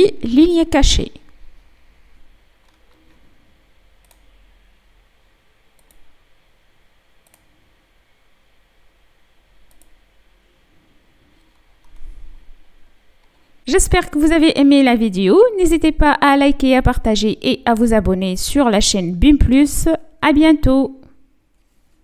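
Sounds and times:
low steady hiss: 0.0 - 22.0
computer mouse clicks: 2.6 - 3.2, 4.0 - 4.3, 5.8 - 6.1, 7.2 - 7.5, 9.6 - 10.0, 11.4 - 12.1.

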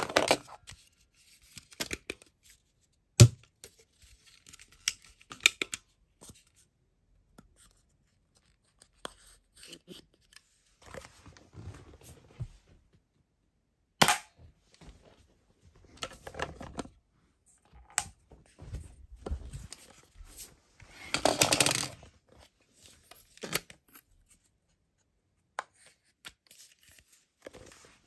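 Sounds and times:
plastic rattling and scraping: 15.8 - 17.0, 17.6 - 22.1.

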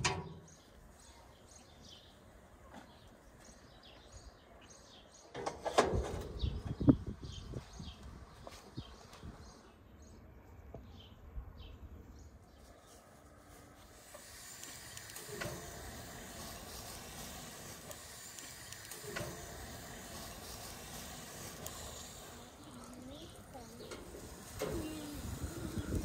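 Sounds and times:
steady hiss: 13.2 - 26.0.

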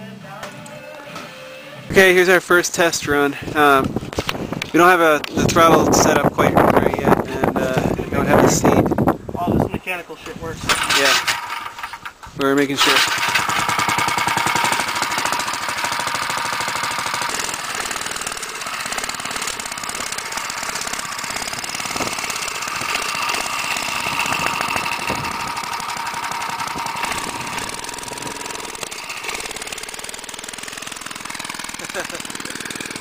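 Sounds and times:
small engine running: 10.7 - 33.0.

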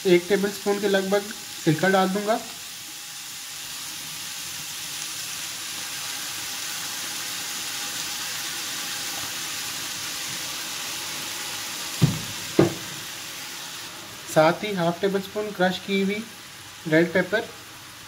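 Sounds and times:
vegetables sizzling in a frying pan: 0.0 - 18.0
brief thump: 12.0 - 13.0.

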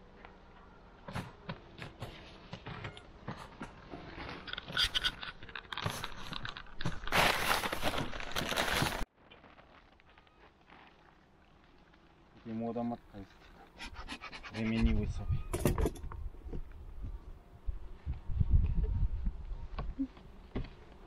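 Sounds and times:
hive cover crinkling: 5.7 - 12.3.

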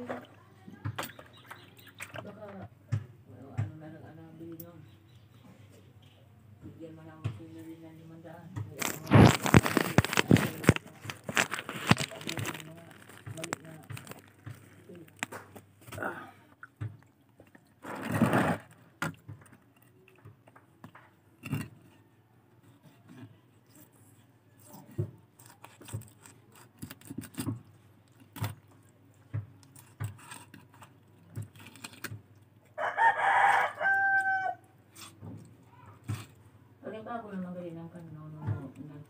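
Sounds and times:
scuffle: 8.6 - 16.1
rooster crowing: 32.8 - 34.7.

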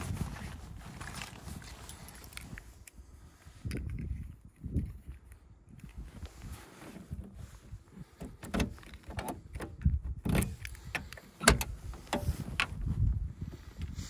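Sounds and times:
key clicking in door lock: 8.2 - 11.8
door latch click: 8.2 - 12.3.

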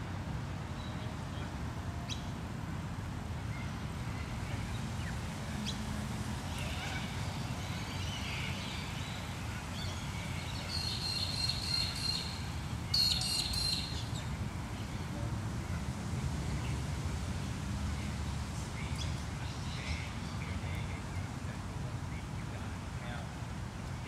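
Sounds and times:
distant city traffic rumble: 0.0 - 24.0
birds calling: 6.5 - 15.1.

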